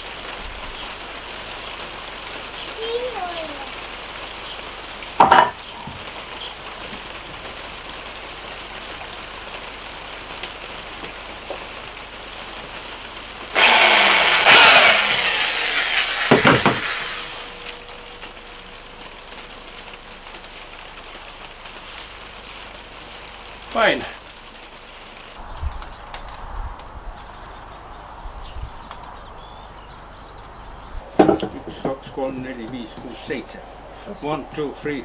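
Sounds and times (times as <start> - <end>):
rain hissing: 0.0 - 35.0
knock of wood on wood: 5.2 - 6.0, 16.3 - 16.9, 31.2 - 32.0
electric drill boring into log: 13.5 - 18.0.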